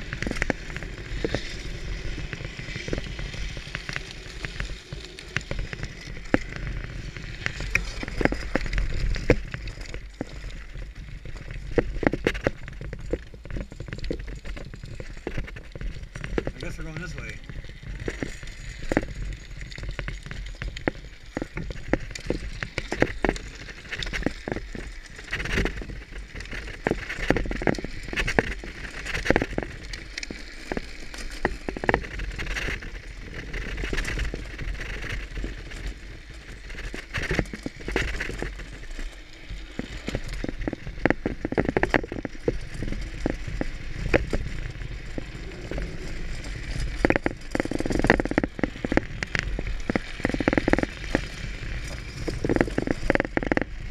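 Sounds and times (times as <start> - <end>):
wheels scraping over pavement: 0.0 - 53.9
wind rumbling on microphone: 0.0 - 53.9.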